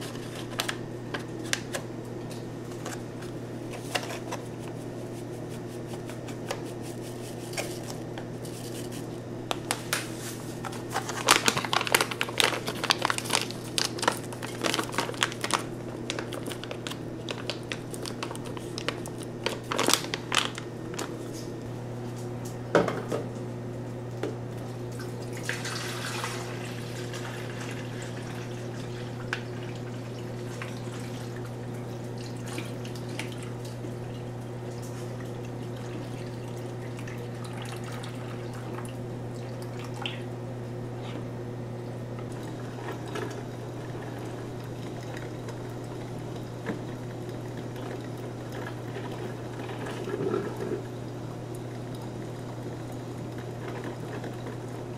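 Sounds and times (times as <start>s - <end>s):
steady low hum: 0.0s - 54.9s
water pouring into reservoir: 25.3s - 31.4s.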